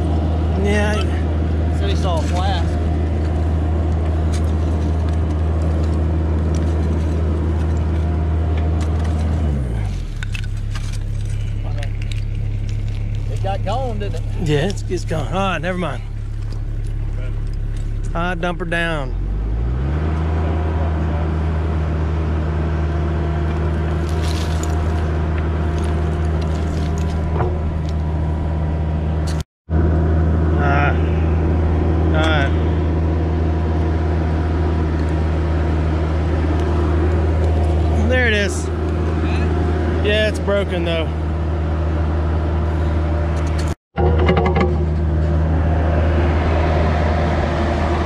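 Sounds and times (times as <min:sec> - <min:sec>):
excavator diesel engine running: 0:00.0 - 0:48.0
clicks of stones being raked: 0:24.0 - 0:28.0.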